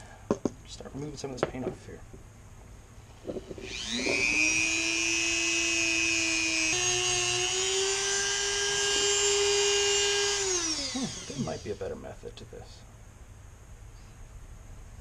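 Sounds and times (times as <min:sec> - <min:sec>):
rotary tool high whine: 0:03.0 - 0:12.0.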